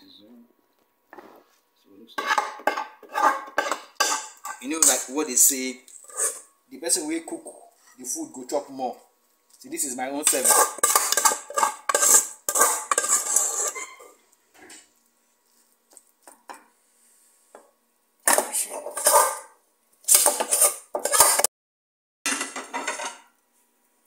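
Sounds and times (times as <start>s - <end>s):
utensil scraping and clinking pot: 2.2s - 6.5s, 10.2s - 14.9s, 18.3s - 21.5s, 22.3s - 23.3s.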